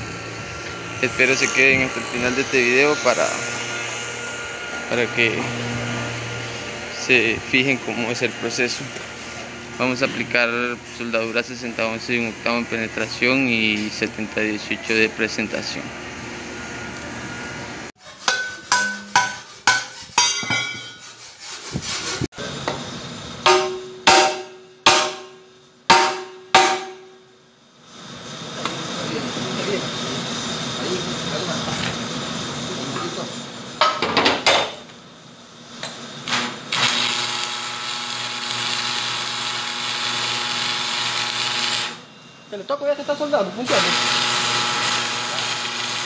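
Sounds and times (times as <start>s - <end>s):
welding arc crackling hiss: 0.0s - 14.6s, 26.1s - 33.8s, 34.8s - 46.0s
hammer ringing on steel rim: 18.2s - 21.0s, 23.4s - 27.2s
sharp welding cracks: 36.2s - 42.0s, 43.7s - 46.0s.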